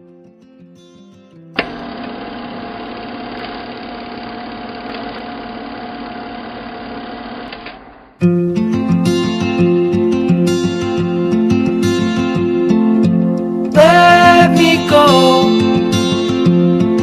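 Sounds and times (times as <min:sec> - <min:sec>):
strummed guitar music: 0:00.0 - 0:02.9, 0:08.2 - 0:17.0.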